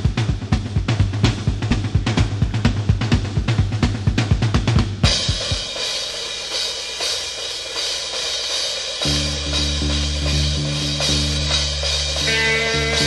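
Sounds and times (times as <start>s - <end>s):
bass guitar: 0.0s - 5.4s, 9.0s - 13.0s
fast drum strokes: 0.0s - 13.0s.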